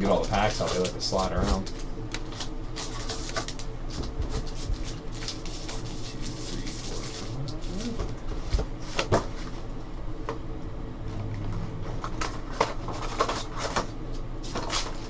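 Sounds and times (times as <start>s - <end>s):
foil packs rustling: 0.0s - 9.6s, 11.9s - 15.0s.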